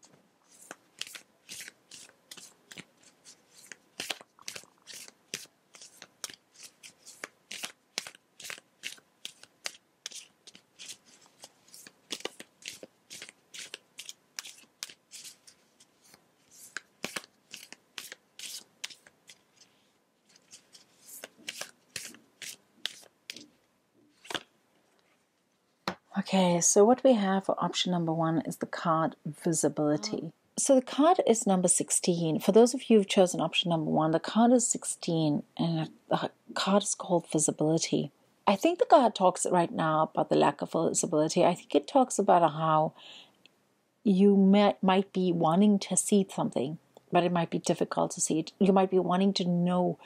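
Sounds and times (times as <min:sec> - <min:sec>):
cards snapping and swishing: 0:03.6 - 0:15.4, 0:16.0 - 0:19.4, 0:20.4 - 0:23.4, 0:24.2 - 0:24.5.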